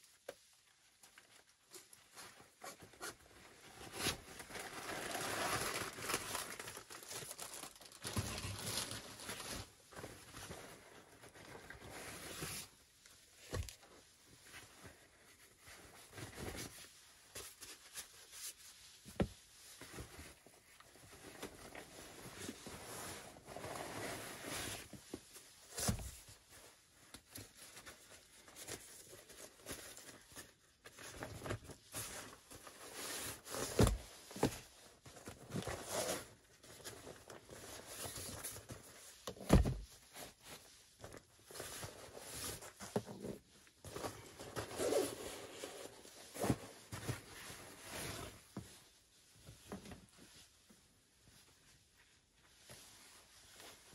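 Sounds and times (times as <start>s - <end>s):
nylon bags rustling: 4.0s - 11.9s.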